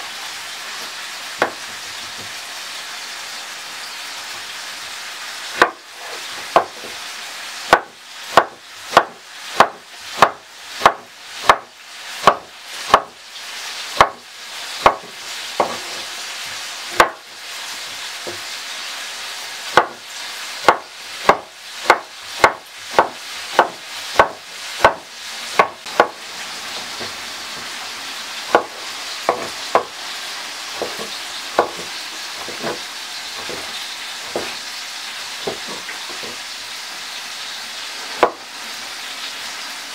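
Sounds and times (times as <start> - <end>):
steady hiss: 0.0 - 39.9
knife chopping on wooden board: 0.8 - 2.3, 5.6 - 7.0, 7.7 - 13.2, 14.0 - 14.2, 14.8 - 16.0, 16.9 - 17.2, 18.2 - 18.5, 19.7 - 20.0, 20.6 - 27.6, 28.5 - 30.0, 30.8 - 32.8, 33.4 - 34.6, 35.4 - 36.4, 38.2 - 38.4.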